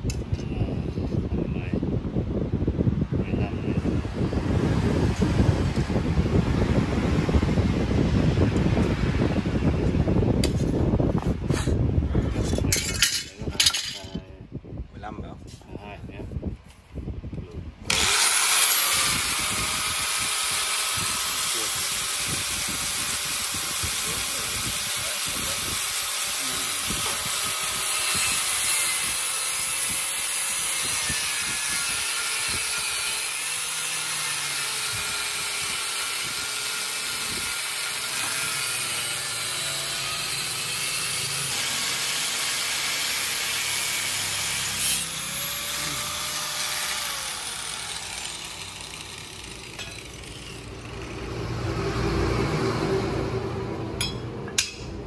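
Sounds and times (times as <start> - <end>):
angle grinder cutting steel: 17.9 - 54.8.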